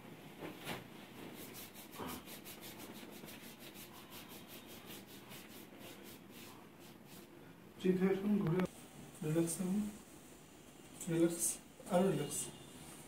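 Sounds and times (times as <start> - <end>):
hands rubbing on skin: 1.2 - 7.3.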